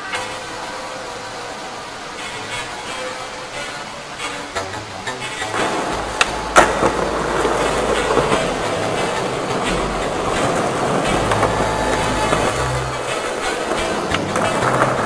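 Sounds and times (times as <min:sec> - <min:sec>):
skateboard wheels rolling on concrete: 0:00.0 - 0:15.0.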